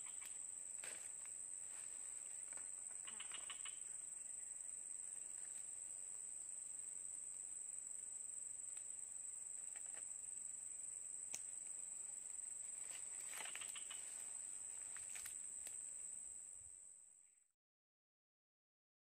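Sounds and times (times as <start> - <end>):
high-pitched insect drone: 0.0 - 5.7, 9.7 - 17.4
faint clicks and rustles: 12.8 - 15.8.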